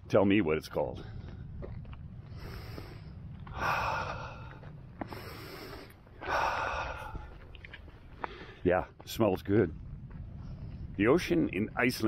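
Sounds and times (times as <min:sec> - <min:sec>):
steady low rumble: 0:00.0 - 0:12.0
man breathing in deeply: 0:02.2 - 0:07.4.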